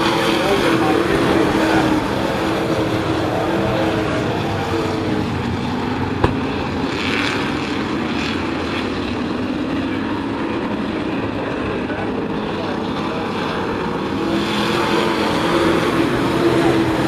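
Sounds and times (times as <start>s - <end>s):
racing truck engines droning: 0.0s - 17.0s.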